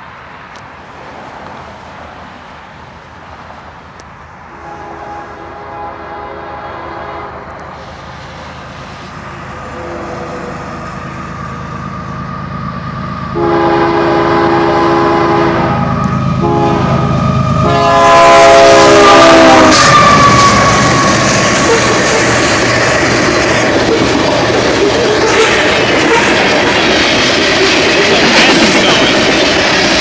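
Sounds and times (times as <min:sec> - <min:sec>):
locomotive rumble: 0:00.0 - 0:30.0
train air horn blasts: 0:04.5 - 0:07.9, 0:09.5 - 0:11.0, 0:13.3 - 0:22.6, 0:24.8 - 0:26.5.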